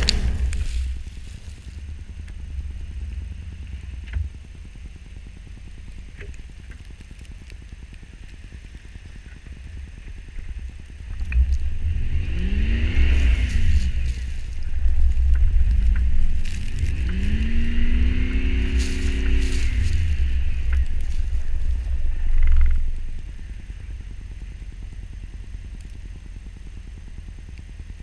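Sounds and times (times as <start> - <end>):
car engine revving: 0.0 - 4.2, 10.2 - 24.9
wheel spinning in snow: 0.0 - 28.0.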